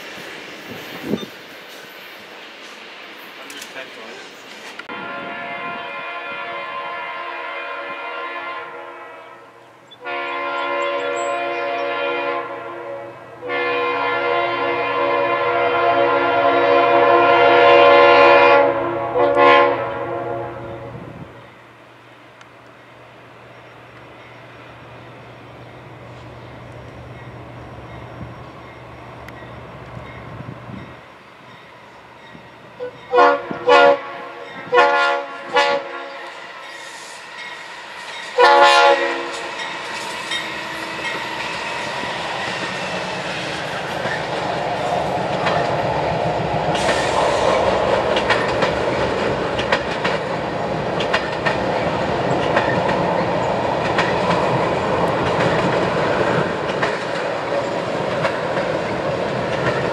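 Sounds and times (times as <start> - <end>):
train wheels clickety-clack: 0.0 - 4.9, 26.1 - 59.9
locomotive air horn blasts: 4.9 - 21.1, 32.8 - 36.3, 38.4 - 39.6.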